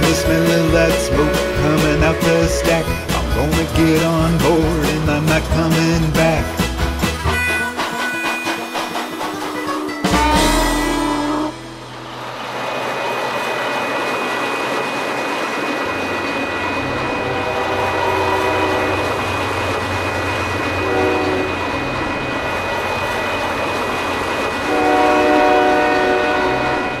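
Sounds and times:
locomotive chime whistle: 0:00.0 - 0:05.0, 0:07.2 - 0:12.2, 0:20.7 - 0:22.0, 0:24.6 - 0:27.0
steam locomotive rumbling: 0:00.0 - 0:27.0
steady high tone: 0:07.4 - 0:13.1.

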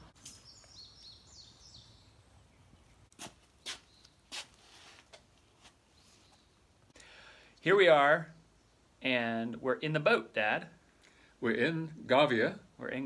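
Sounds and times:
songbird chirping: 0:00.0 - 0:11.9
scuffing footsteps: 0:03.1 - 0:05.8.

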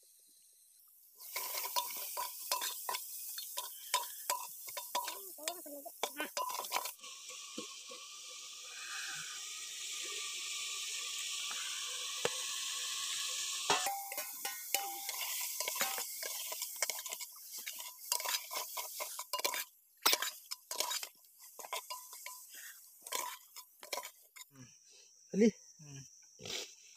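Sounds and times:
food sizzling in a pot: 0:00.0 - 0:24.6
metal spoon scraping a pot: 0:01.2 - 0:07.0, 0:13.6 - 0:24.5.

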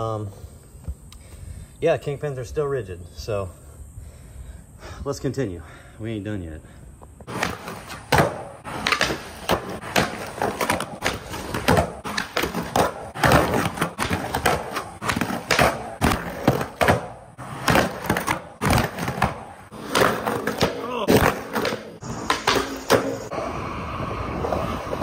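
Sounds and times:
skateboard wheels rolling on concrete: 0:06.3 - 0:25.0
skateboard clacking on ground: 0:07.2 - 0:23.3
skateboard trucks grinding on curb: 0:07.2 - 0:25.0.

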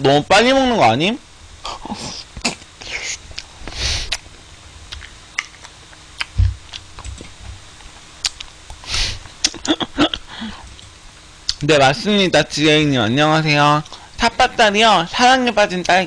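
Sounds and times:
mouth clicks and smacks: 0:04.9 - 0:08.8, 0:09.4 - 0:10.2.

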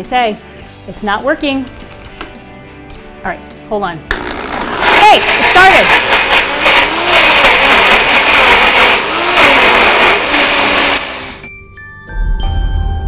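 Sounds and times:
blender running: 0:04.1 - 0:11.4.

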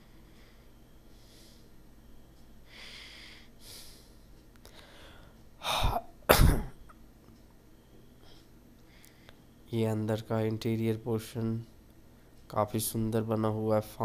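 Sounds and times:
person sneezing: 0:05.6 - 0:06.8.

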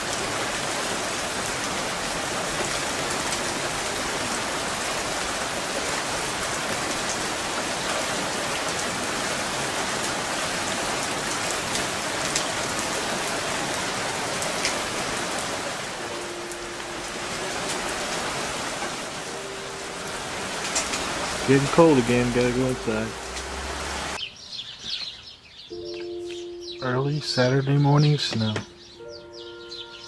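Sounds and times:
hail hissing on ground: 0:00.0 - 0:24.2
sharp ticks of hailstones: 0:10.8 - 0:15.0, 0:20.1 - 0:21.7.

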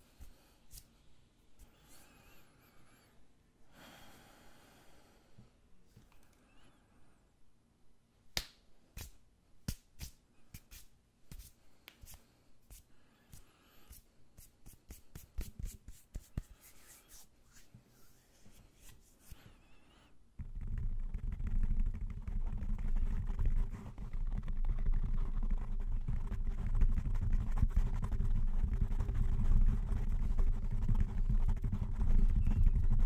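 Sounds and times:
hands rubbing and flicking: 0:00.0 - 0:02.1, 0:08.3 - 0:19.6
muffled scratching on microphone: 0:20.4 - 0:33.0.

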